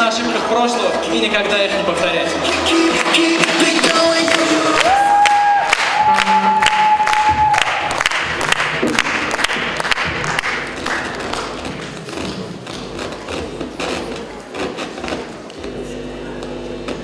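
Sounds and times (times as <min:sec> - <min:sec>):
hall crowd noise: 0:00.0 - 0:17.0
held musical note: 0:06.0 - 0:07.6.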